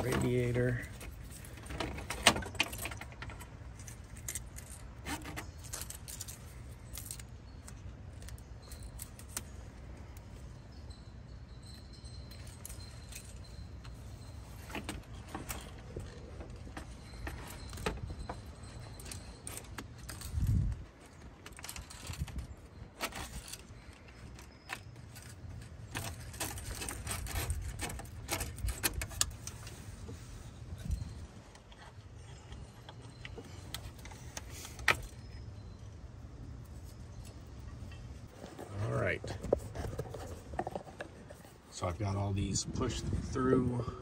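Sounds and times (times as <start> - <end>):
plastic hardware clicks and rattles: 14.6 - 29.7.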